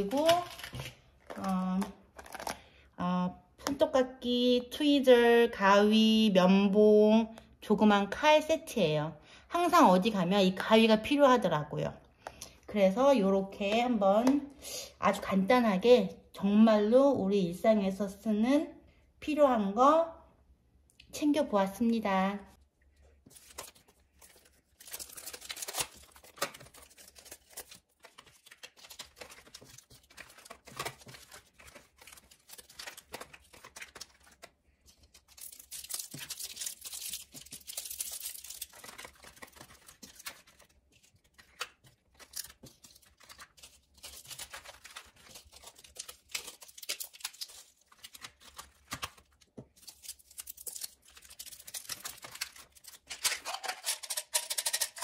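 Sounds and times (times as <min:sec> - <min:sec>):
plastic packets crinkling: 0:23.2 - 0:54.9.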